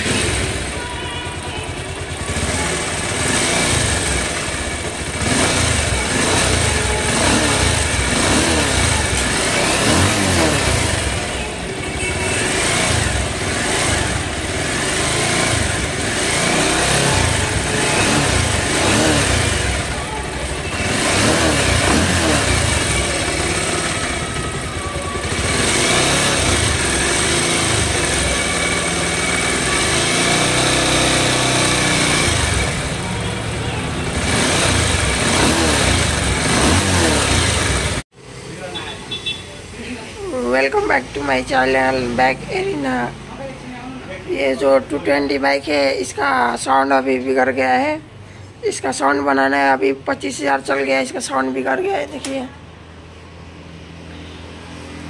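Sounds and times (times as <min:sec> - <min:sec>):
motorcycle engine revving: 0:00.0 - 0:43.6
engine cracking sound: 0:01.9 - 0:11.5.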